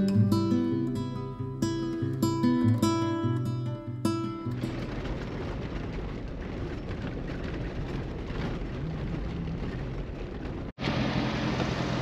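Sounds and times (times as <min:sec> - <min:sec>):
tyres rumbling on dirt and gravel: 0:03.0 - 0:12.0
car engine running: 0:08.6 - 0:12.0.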